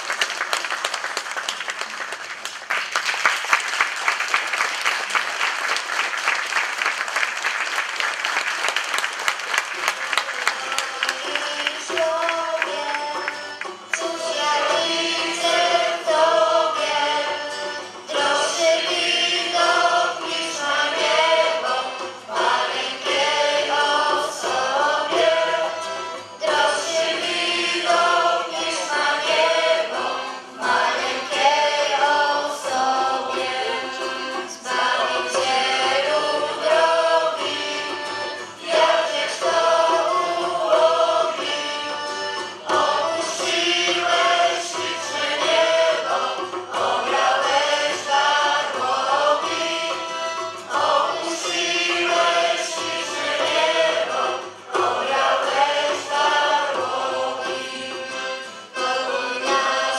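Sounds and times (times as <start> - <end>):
choir singing a carol: 10.4 - 59.9.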